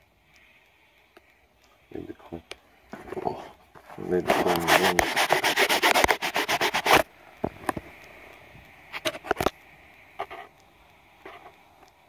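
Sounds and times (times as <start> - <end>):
rubbing and scraping on microphone: 3.0 - 7.1, 8.9 - 9.5, 10.2 - 10.5, 11.2 - 11.6.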